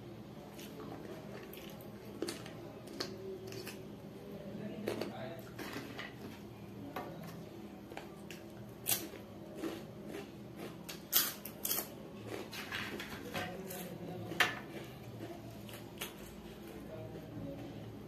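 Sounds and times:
chewing with sharp crunches: 0:08.8 - 0:12.6.

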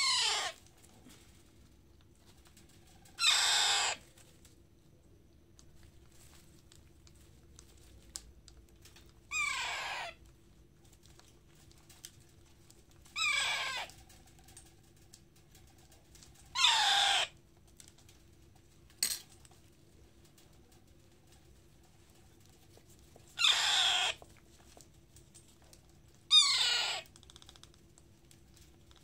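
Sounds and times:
baby parrot begging calls: 0:00.0 - 0:00.6, 0:03.2 - 0:04.0, 0:09.3 - 0:10.2, 0:13.1 - 0:13.9, 0:16.5 - 0:17.3, 0:23.4 - 0:24.2, 0:26.3 - 0:27.1.

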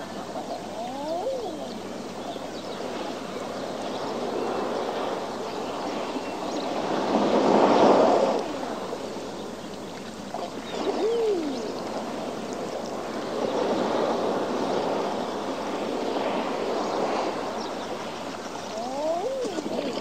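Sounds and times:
swooping bird cry: 0:00.5 - 0:02.5, 0:10.6 - 0:11.8
sea waves washing on rocks: 0:04.1 - 0:20.0.

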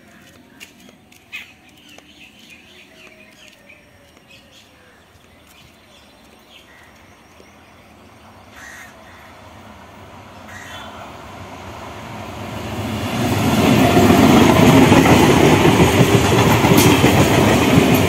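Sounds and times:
birds chirping: 0:00.0 - 0:11.4
train approaching rumble: 0:07.5 - 0:18.0.

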